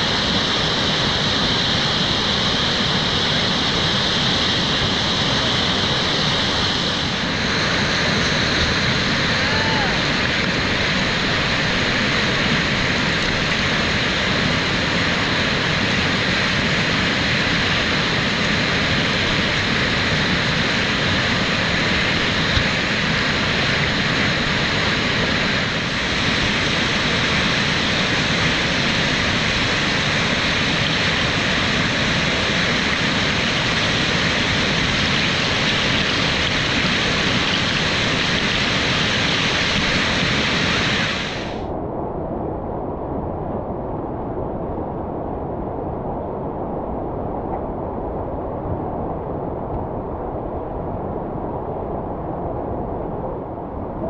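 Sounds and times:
whitewater rushing: 0:00.0 - 0:41.7.

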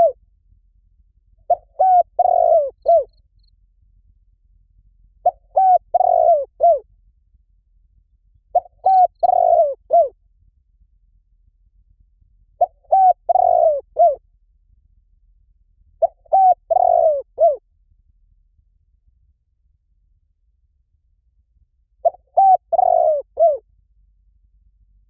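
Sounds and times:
dove cooing: 0:01.5 - 0:03.1, 0:05.2 - 0:06.8, 0:08.5 - 0:10.2, 0:12.6 - 0:14.2, 0:16.0 - 0:17.6, 0:22.0 - 0:23.6.

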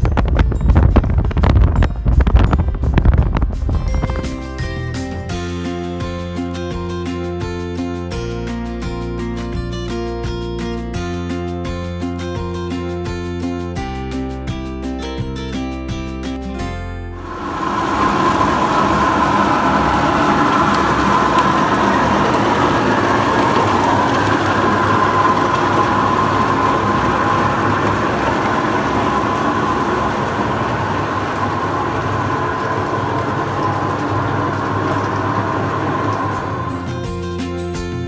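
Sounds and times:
destemmer machine hum: 0:17.2 - 0:38.0
grapes rattling and rushing: 0:17.3 - 0:36.9.

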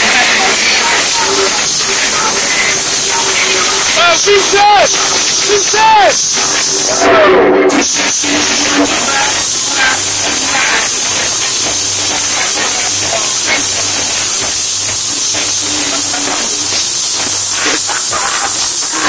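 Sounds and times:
steady hissing noise: 0:00.0 - 0:07.1, 0:07.7 - 0:19.0
faint voices: 0:00.0 - 0:19.0.

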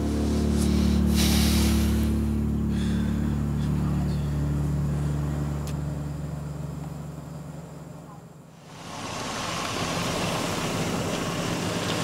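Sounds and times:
airy swell: 0:00.0 - 0:05.6
tense low drone score: 0:00.0 - 0:12.0.

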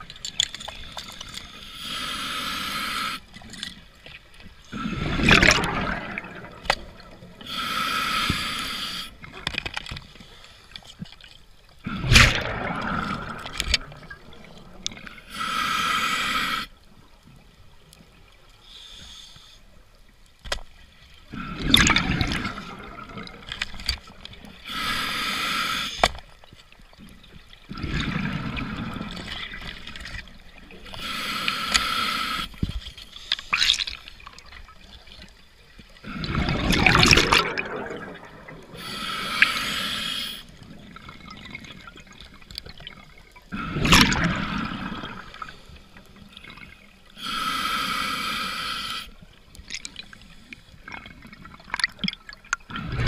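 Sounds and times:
regulator inhale hiss: 0:01.3 - 0:03.4, 0:07.4 - 0:09.2, 0:15.0 - 0:16.8, 0:18.6 - 0:19.8, 0:24.6 - 0:26.2, 0:30.8 - 0:33.6, 0:38.8 - 0:40.6, 0:47.0 - 0:49.4
exhaled bubbles gushing: 0:04.7 - 0:07.3, 0:11.8 - 0:15.0, 0:21.3 - 0:23.5, 0:27.7 - 0:30.1, 0:36.0 - 0:38.8, 0:40.8 - 0:45.6, 0:50.8 - 0:53.0.

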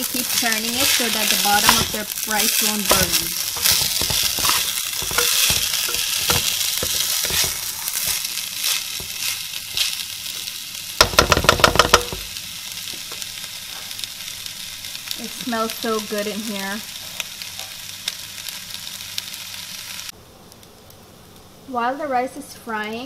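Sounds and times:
spatula scraping pot: 0:00.0 - 0:10.0
rice sizzling in oil: 0:00.0 - 0:23.0.

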